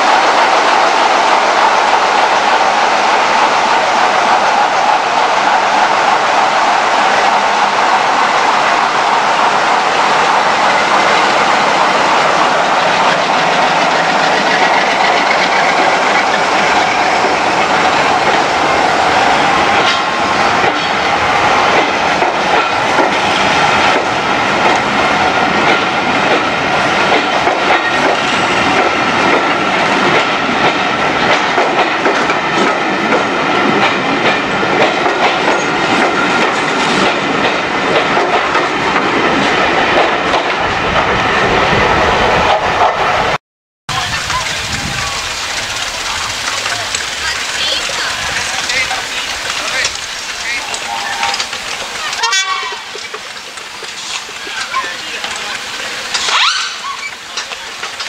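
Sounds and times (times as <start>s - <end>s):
diesel locomotive engine passing: 0.0s - 58.0s
train wheels clattering over rail joints: 10.0s - 40.6s, 44.0s - 58.0s.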